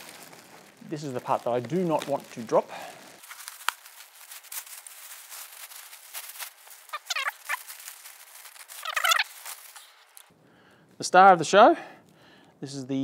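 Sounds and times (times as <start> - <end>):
plastic rustling and crinkling: 0.0 - 10.3.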